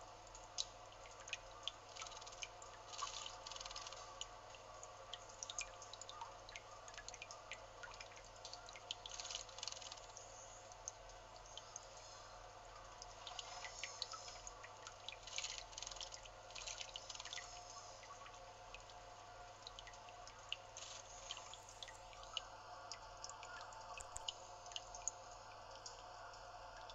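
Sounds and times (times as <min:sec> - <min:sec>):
water trickling and dripping: 0:00.0 - 0:26.9.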